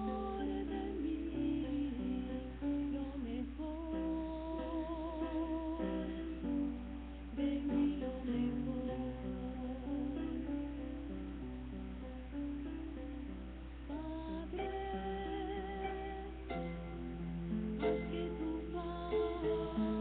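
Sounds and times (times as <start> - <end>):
woman singing a hymn: 0.0 - 10.9, 13.9 - 16.9, 17.8 - 20.0
low electrical hum: 0.0 - 20.0.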